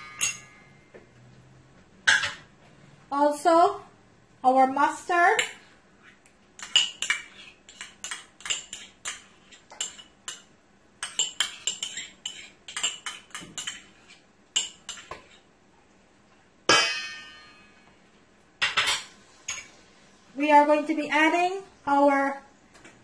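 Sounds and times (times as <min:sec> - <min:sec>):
metallic ring: 0:00.0 - 0:00.9, 0:16.7 - 0:17.9.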